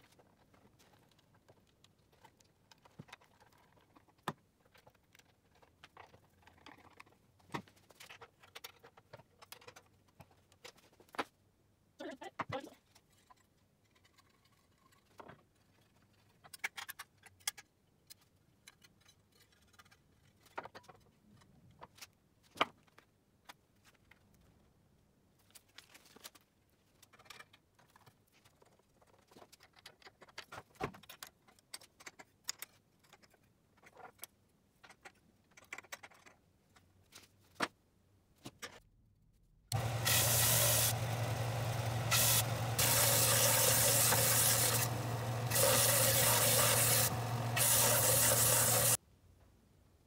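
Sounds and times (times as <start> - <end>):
metal parts clicking and clinking: 15.8 - 21.1, 31.0 - 36.4.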